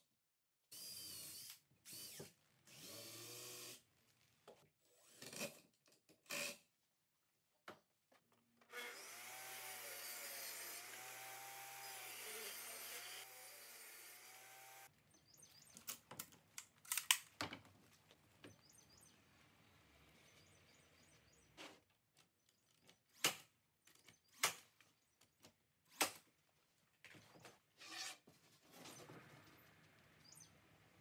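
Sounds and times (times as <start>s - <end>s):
nail gun firing: 24.4s - 24.6s.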